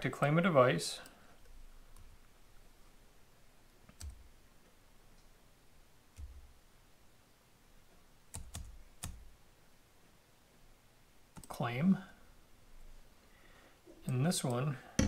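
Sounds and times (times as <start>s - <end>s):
computer keyboard and mouse clicks: 8.3s - 9.2s.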